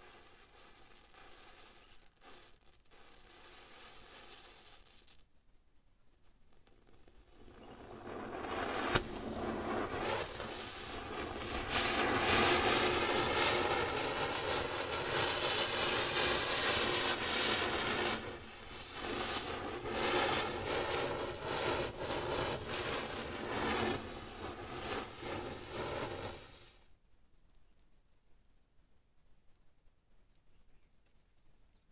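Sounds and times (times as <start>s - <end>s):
spinner firework hissing: 0.0s - 5.2s, 6.6s - 26.9s
firework crack: 0.0s - 5.3s, 6.1s - 26.9s.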